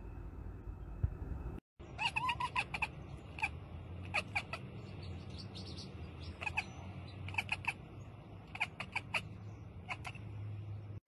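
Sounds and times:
cat chattering: 2.0s - 4.7s, 6.2s - 10.4s.

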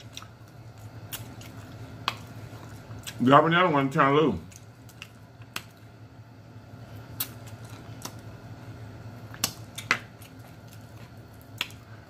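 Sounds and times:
man chewing and lip-smacking: 0.0s - 3.2s, 7.0s - 8.3s.

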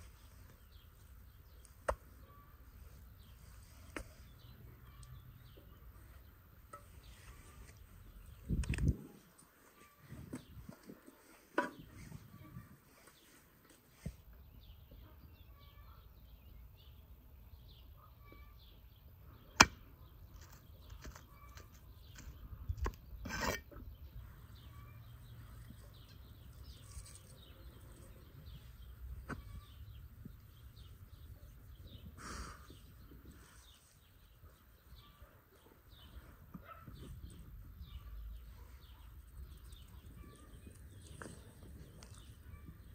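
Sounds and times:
faint bird chirps: 0.0s - 6.2s, 14.0s - 17.0s, 17.6s - 23.0s, 23.7s - 42.9s.

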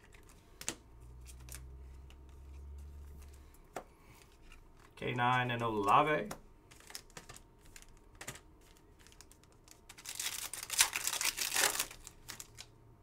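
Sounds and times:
foil wrapper crinkling: 6.7s - 12.7s.

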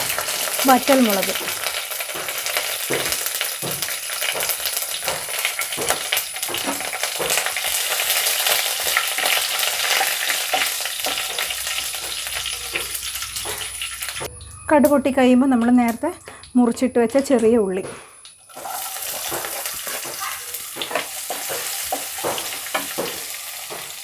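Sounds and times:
seeds popping in hot oil: 0.0s - 24.0s
spatula stirring in pan: 1.4s - 14.3s, 18.5s - 24.0s.

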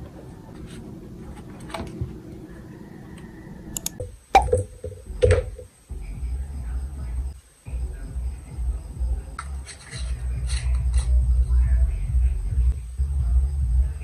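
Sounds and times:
knocks and rattles: 4.4s - 5.7s.

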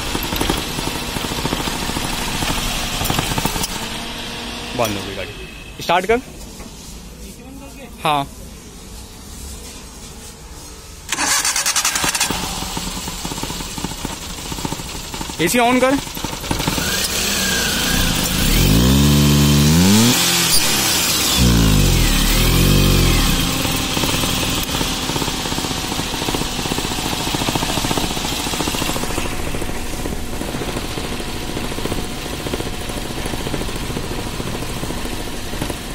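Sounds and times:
car engine idling: 0.0s - 6.2s, 11.1s - 35.9s
man talking: 4.8s - 6.3s, 7.3s - 8.4s, 15.4s - 16.0s
car engine revving: 15.6s - 35.9s.

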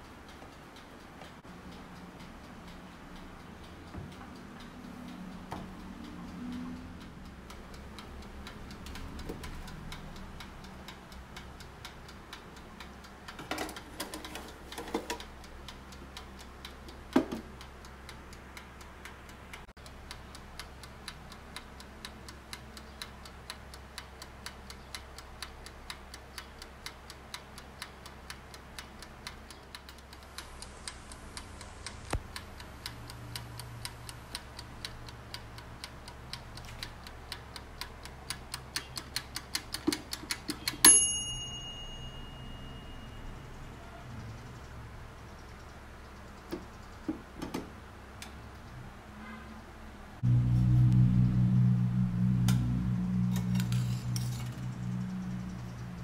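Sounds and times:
mechanical timer ticking: 0.0s - 47.4s
low steady hum: 47.7s - 56.0s.

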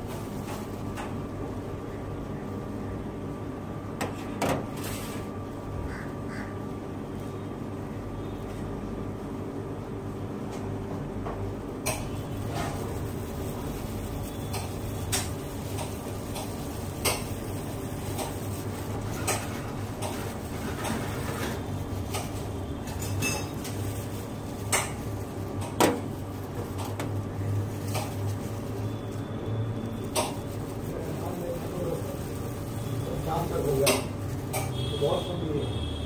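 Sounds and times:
utensils clinking on steel bowls: 14.2s - 25.8s.

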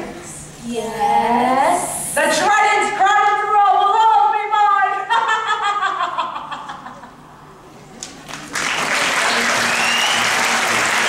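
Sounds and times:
audience applause: 8.0s - 11.0s.

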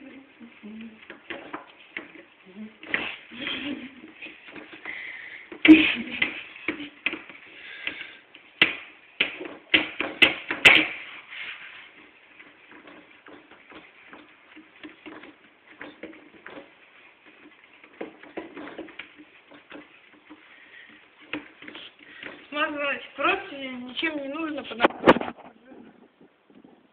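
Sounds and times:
hands patting dough in metal tray: 0.0s - 26.7s
rustling: 0.0s - 26.9s.

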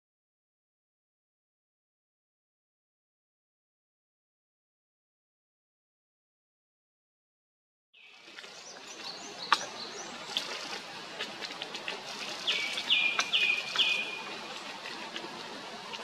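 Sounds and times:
other birds calling: 8.0s - 10.9s, 12.0s - 14.8s.

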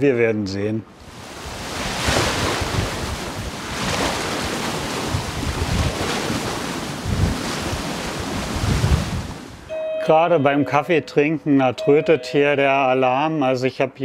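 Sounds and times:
waves rushing along hull: 1.0s - 9.8s
wind buffeting microphone: 1.1s - 9.7s.

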